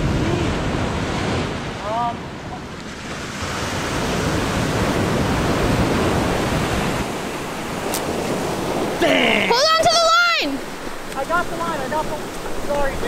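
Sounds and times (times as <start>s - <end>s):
wind rumbling on microphone: 0.0s - 9.0s
surf breaking on beach: 0.0s - 13.0s.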